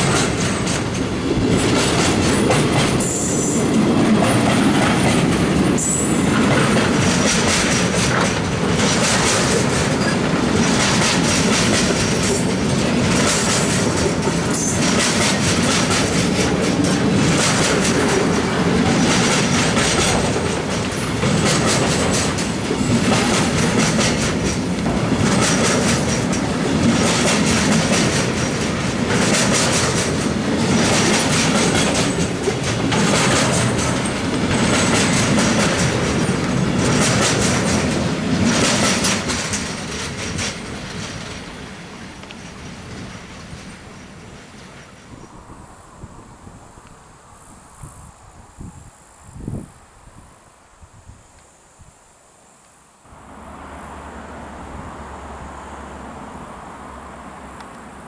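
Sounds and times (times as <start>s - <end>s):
wheels clicking over rail joints: 0.0s - 45.2s
freight train wheels rumbling: 0.0s - 50.2s.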